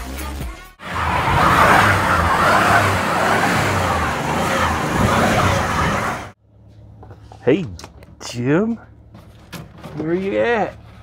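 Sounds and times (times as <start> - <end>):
car engine running hard: 0.8 - 6.4
tyres rushing on snowy road: 0.8 - 6.4.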